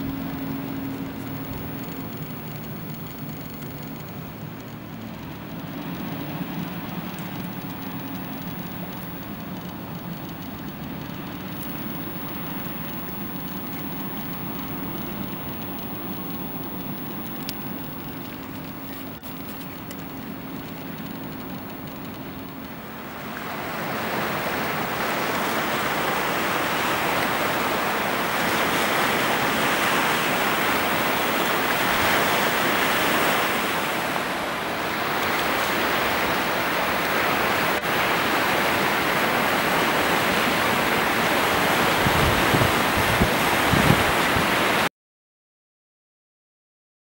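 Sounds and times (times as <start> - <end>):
low rumbles: 0.0 - 23.6
boat wake water rushing: 0.0 - 44.9.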